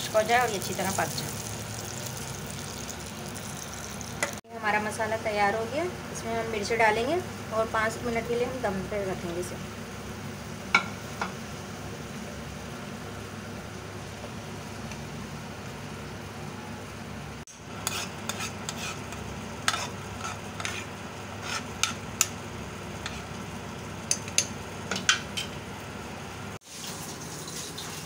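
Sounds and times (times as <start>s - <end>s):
oil sizzling in a frying pan: 0.0s - 4.5s, 6.4s - 16.5s, 17.3s - 28.0s
spatula scraping and tapping pan: 17.8s - 22.4s, 23.0s - 23.3s.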